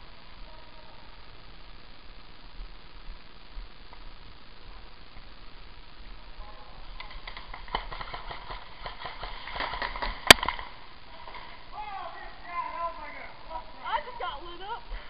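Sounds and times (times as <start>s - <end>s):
airsoft gunfire pops: 8.9s - 10.7s.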